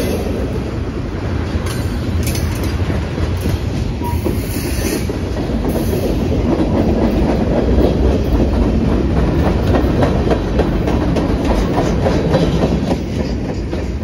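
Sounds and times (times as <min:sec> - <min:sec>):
train wheels rumbling on rail: 0:00.0 - 0:14.0
wheels clacking over rail joints: 0:00.0 - 0:14.0.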